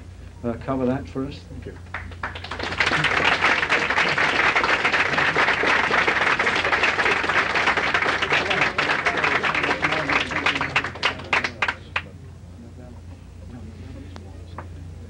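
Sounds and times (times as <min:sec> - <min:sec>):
audience applauding: 0:01.9 - 0:12.1.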